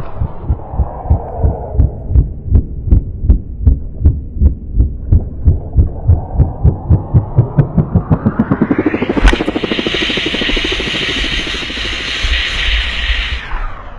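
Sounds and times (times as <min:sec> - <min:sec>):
helicopter rotor thumping: 0:06.7 - 0:12.6.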